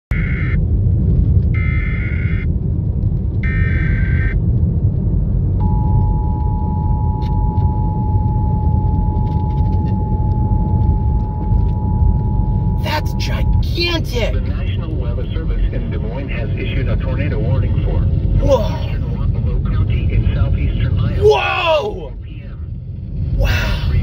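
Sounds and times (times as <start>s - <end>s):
emergency alert data tones: 0.1s - 0.6s, 1.6s - 2.5s, 3.4s - 4.4s, 5.6s - 14.4s
two-tone alert signal: 5.6s - 13.8s.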